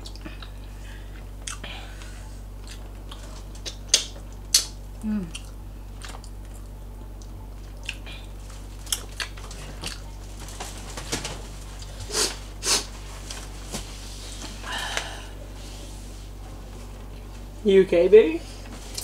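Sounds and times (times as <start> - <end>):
low steady hum: 0.0 - 19.0
chewing and mouth clicks: 2.6 - 8.2, 8.8 - 10.1
person sniffing: 12.1 - 12.9.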